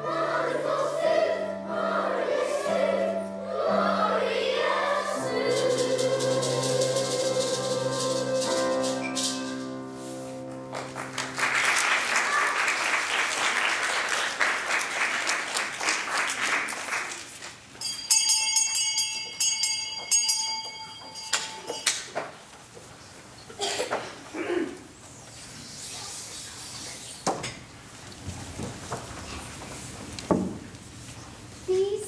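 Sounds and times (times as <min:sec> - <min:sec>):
children's choir singing: 0:00.0 - 0:10.1
audience applause: 0:10.7 - 0:17.4
high steady ringing tones: 0:17.8 - 0:22.0.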